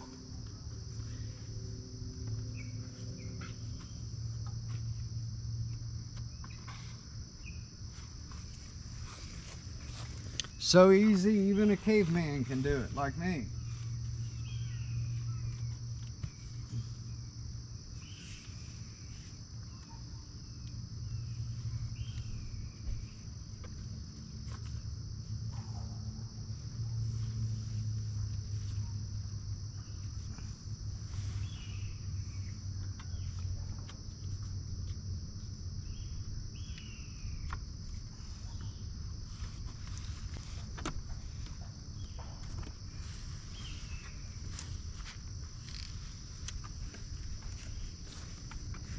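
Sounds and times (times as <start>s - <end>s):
low hum: 0.0s - 19.2s
insects buzzing: 0.0s - 48.9s.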